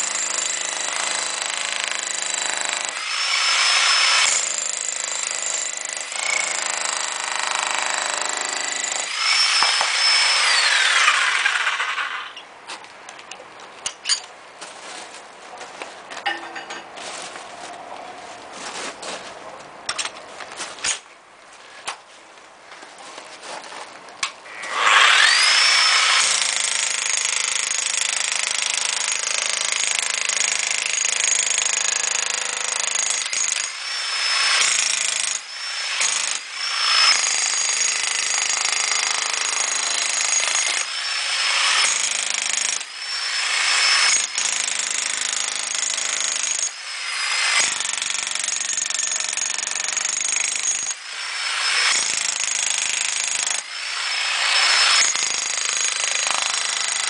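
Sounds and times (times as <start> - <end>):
demolition hammer chiselling plaster: 0.0 - 12.1, 24.7 - 57.0.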